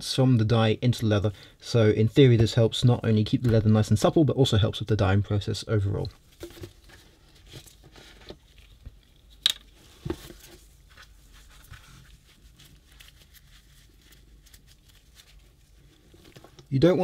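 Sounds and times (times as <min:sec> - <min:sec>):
cloth rustling and dabbing: 0:06.2 - 0:16.7.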